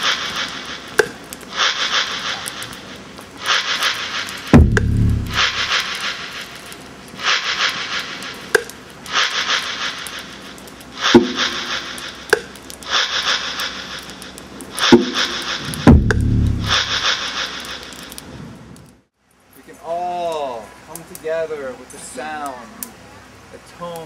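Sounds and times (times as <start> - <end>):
deep drum thumps: 4.6 - 5.7, 15.9 - 17.0.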